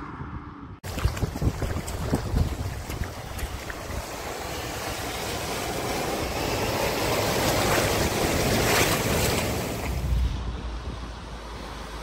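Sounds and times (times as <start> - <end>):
water splashing: 0.8 - 12.0
car driving through flood water: 0.9 - 12.0.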